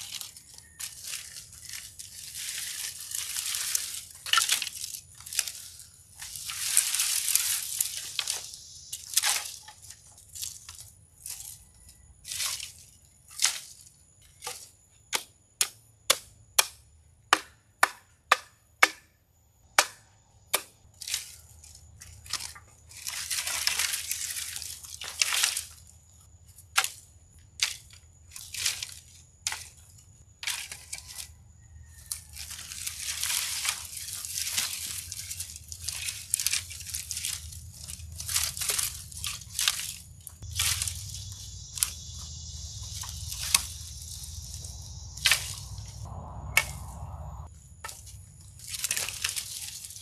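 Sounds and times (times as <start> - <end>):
dry sticks cracking: 0.0 - 11.5, 32.1 - 48.0
dry branches landing rustling: 0.0 - 11.6, 32.4 - 50.0.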